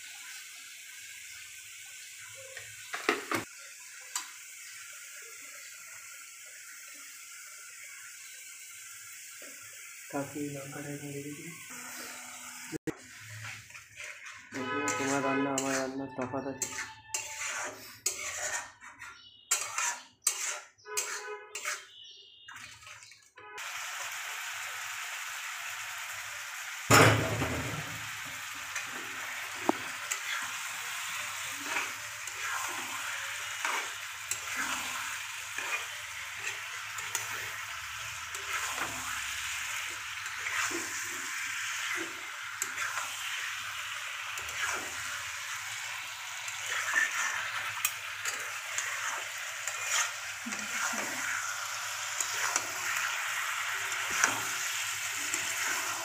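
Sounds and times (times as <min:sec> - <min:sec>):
meat sizzling in a wok: 0:00.0 - 0:18.8, 0:19.5 - 0:22.0, 0:23.6 - 0:56.0
metal spatula scraping a pan: 0:10.2 - 0:23.7, 0:26.9 - 0:56.0.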